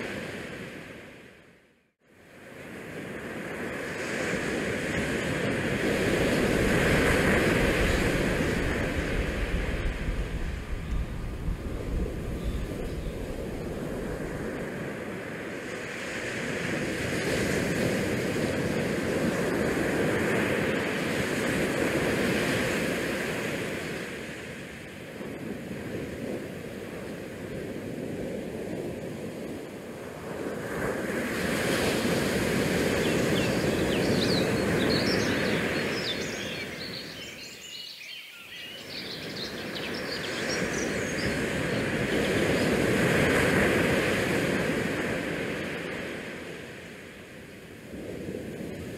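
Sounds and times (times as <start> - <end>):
wind and sea rushing: 0.0 - 48.9.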